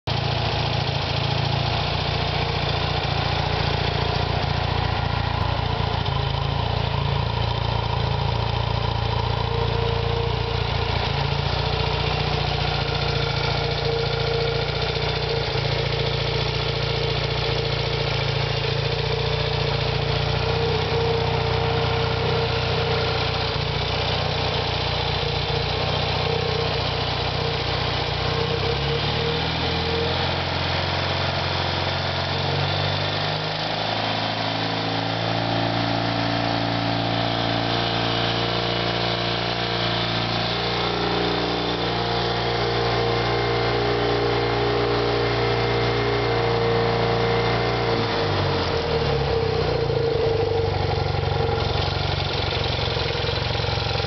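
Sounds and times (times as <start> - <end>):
motorcycle engine idling: 0.1 - 33.0, 47.9 - 54.0.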